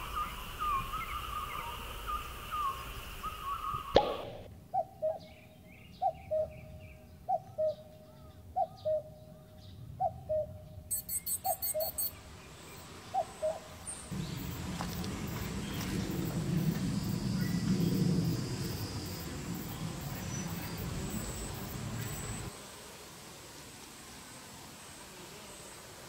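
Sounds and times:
steady high hiss: 0:00.0 - 0:04.5, 0:10.9 - 0:26.0
cuckoo calling: 0:00.0 - 0:09.2, 0:10.0 - 0:12.2, 0:13.1 - 0:14.0
short bird chirps: 0:10.9 - 0:12.2.

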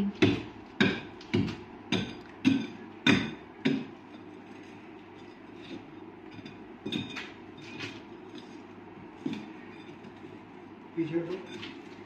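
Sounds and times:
metal tool striking brick: 0:00.2 - 0:03.9.

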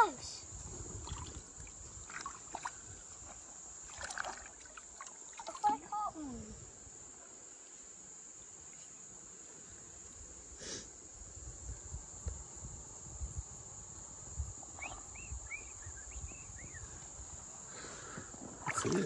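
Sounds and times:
wading through shallow water: 0:00.9 - 0:06.3, 0:18.5 - 0:19.0.

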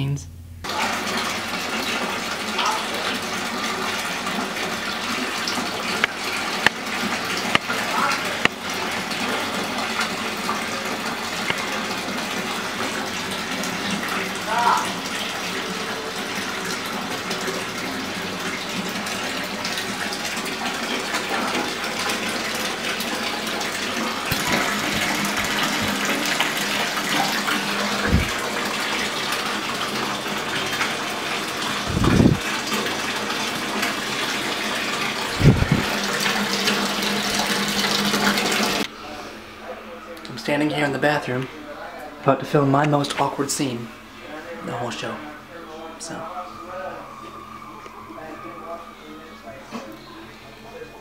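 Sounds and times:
water pouring into bathtub: 0:00.6 - 0:38.9
dull low thumps: 0:31.9 - 0:32.4, 0:35.4 - 0:35.9.

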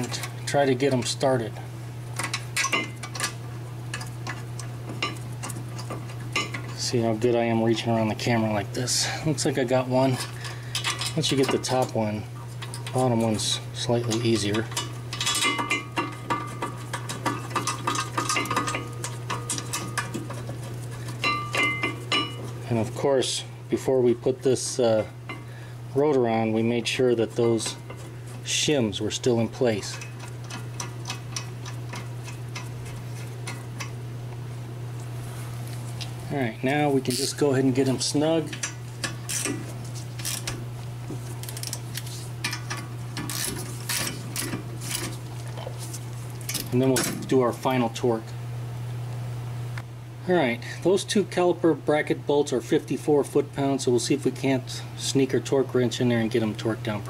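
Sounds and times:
steady low hum: 0:00.0 - 0:57.0
ratchet wrench clicking: 0:39.0 - 0:39.6, 0:42.5 - 0:44.1.

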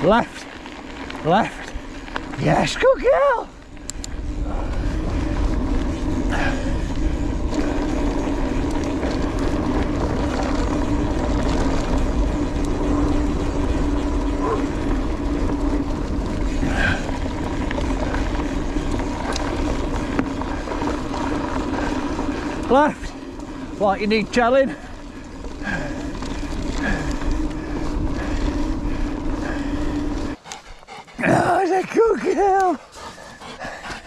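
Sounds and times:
wind rumbling on microphone: 0:00.0 - 0:31.0
bike tyres humming on gravel: 0:00.0 - 0:34.0.

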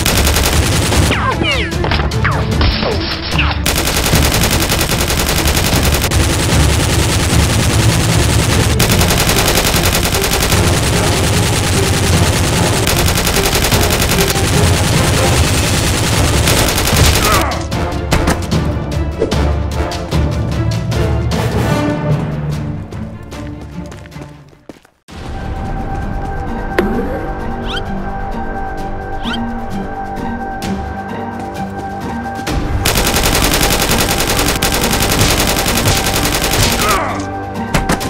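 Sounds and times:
rapid gunfire: 0:00.0 - 0:01.4, 0:03.6 - 0:17.6, 0:32.8 - 0:38.0
background music: 0:00.0 - 0:38.0.

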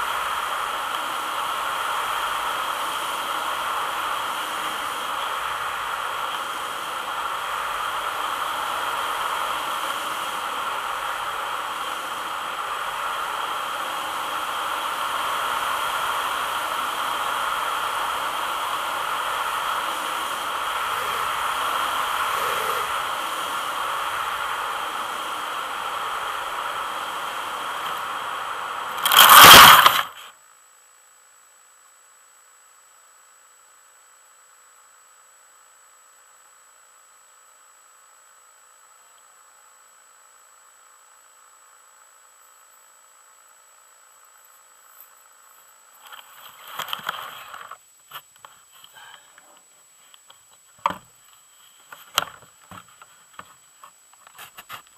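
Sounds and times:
model airplane engine drone: 0:00.0 - 0:30.3
plane scraping into grass: 0:28.9 - 0:30.2.

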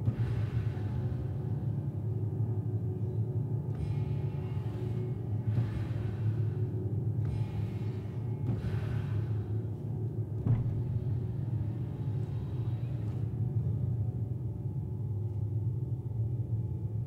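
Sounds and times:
low rumbling ensemble drone: 0:00.0 - 0:17.0.

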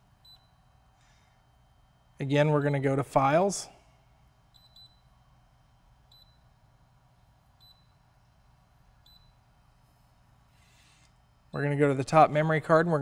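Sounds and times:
short high-pitched beeps: 0:04.5 - 0:05.2, 0:06.1 - 0:06.6, 0:07.5 - 0:08.1, 0:09.0 - 0:10.0.

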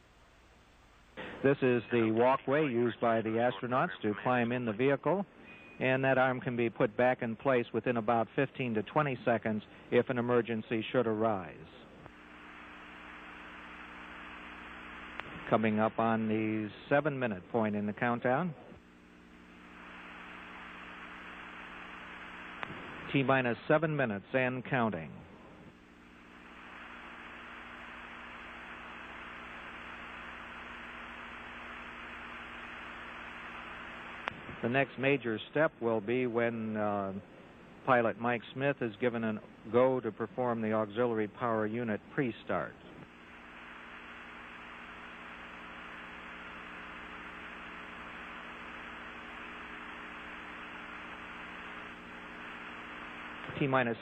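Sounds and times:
low electrical hum: 0:00.0 - 0:54.0
steady hiss: 0:12.0 - 0:17.4, 0:18.0 - 0:54.0.

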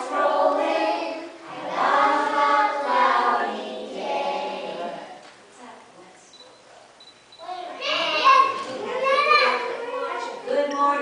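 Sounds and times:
children singing in unison: 0:00.0 - 0:05.2.

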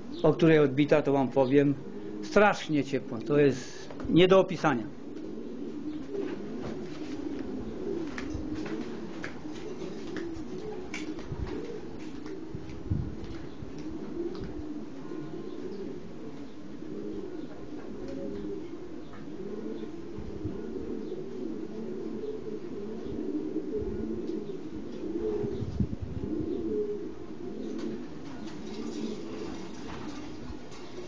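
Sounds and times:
pigeons cooing: 0:00.0 - 0:31.0.

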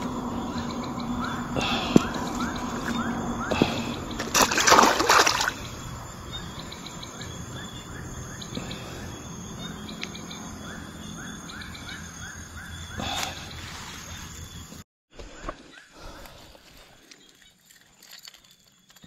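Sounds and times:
loud water splash: 0:04.2 - 0:05.6.

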